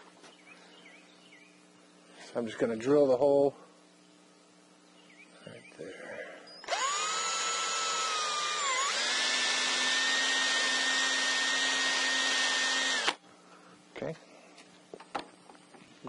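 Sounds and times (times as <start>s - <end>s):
cordless drill whining: 6.6s - 13.2s.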